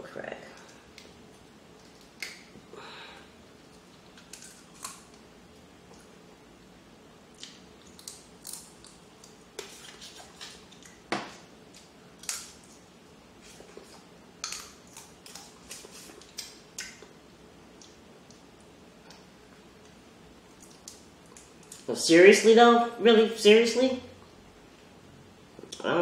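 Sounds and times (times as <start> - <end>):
crab legs cracking and picking: 4.1 - 5.2, 7.4 - 9.4, 11.7 - 12.7.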